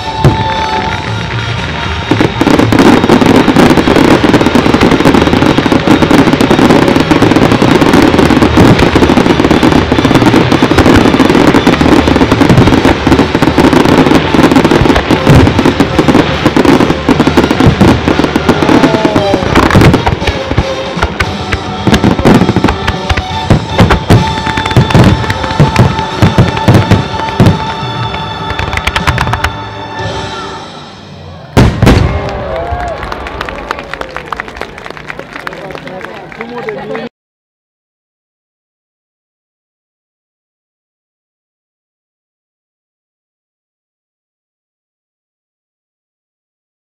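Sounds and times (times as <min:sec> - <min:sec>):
fireworks bursts and bangs: 0:00.0 - 0:29.9, 0:31.6 - 0:37.0
music playing: 0:00.0 - 0:31.9.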